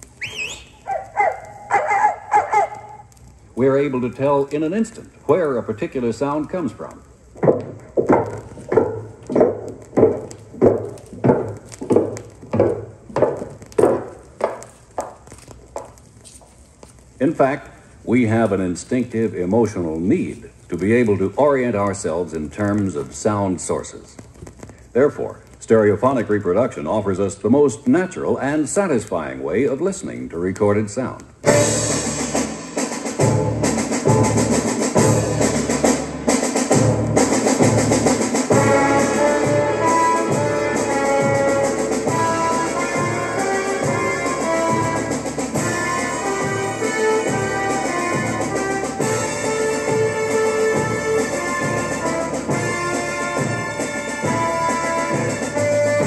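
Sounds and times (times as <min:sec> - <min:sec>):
recorded footsteps over loudspeakers: 0:00.0 - 0:56.0
drum kit beat: 0:07.4 - 0:14.2, 0:31.4 - 0:56.0.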